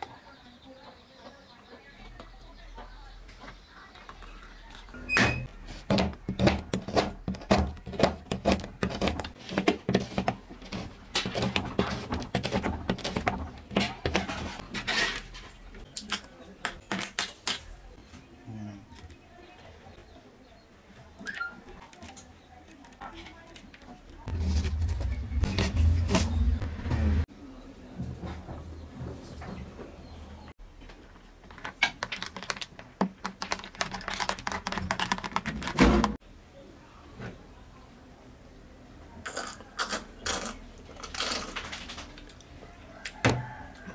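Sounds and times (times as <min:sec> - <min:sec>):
knife chopping chocolate: 0:05.8 - 0:14.2.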